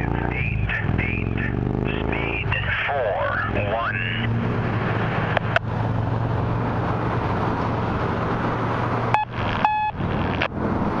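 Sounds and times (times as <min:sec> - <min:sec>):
noisy rumble with low hum: 0:00.0 - 0:11.0
short high electronic beeps: 0:09.2 - 0:10.0.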